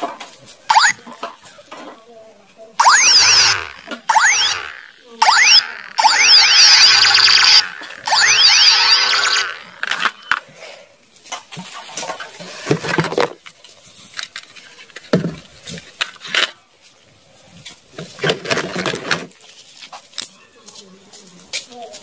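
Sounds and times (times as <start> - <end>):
plastic toy guns clattering: 9.1 - 10.4, 11.3 - 16.6, 18.0 - 19.4.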